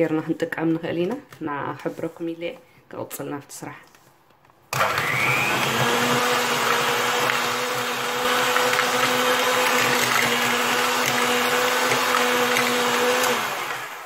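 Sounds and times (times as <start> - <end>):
electric hand mixer whirring: 4.7 - 14.0.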